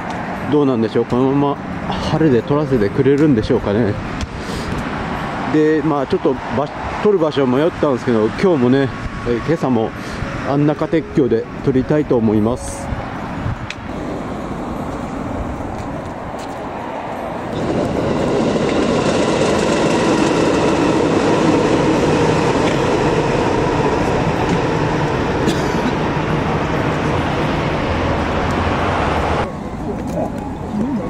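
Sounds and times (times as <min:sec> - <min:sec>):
train wheels rumbling on rails: 0:13.9 - 0:31.0.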